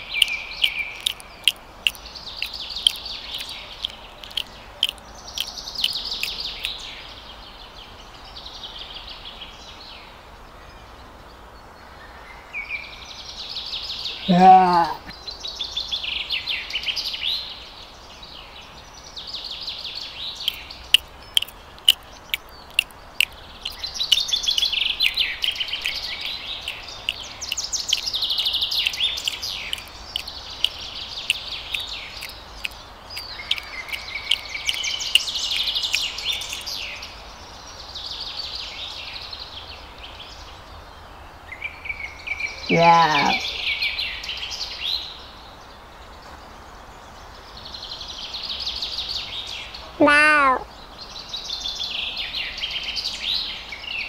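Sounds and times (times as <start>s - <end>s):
birds chirping and twittering: 0.0s - 54.0s
sharp clicks: 0.2s - 6.8s, 20.5s - 28.2s, 28.8s - 36.7s.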